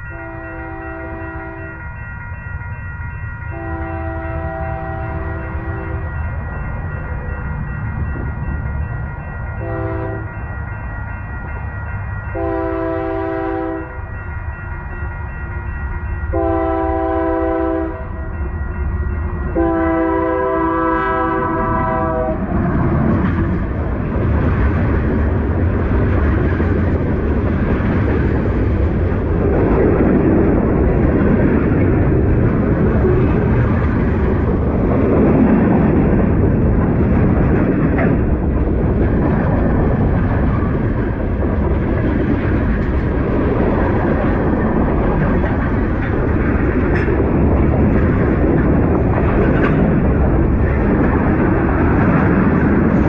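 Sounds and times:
train rumbling past: 0.0s - 53.0s
locomotive horn blasts: 0.1s - 1.8s, 3.5s - 6.0s, 9.6s - 10.4s, 12.3s - 14.0s, 16.3s - 18.2s, 19.6s - 22.5s
wheels clickety-clack: 22.2s - 53.0s.

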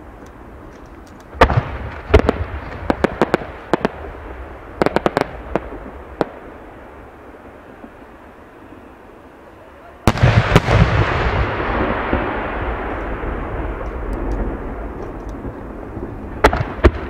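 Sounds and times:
fireworks booming: 0.0s - 17.0s
fireworks crackling: 0.0s - 17.0s
low rumble: 10.1s - 17.0s.

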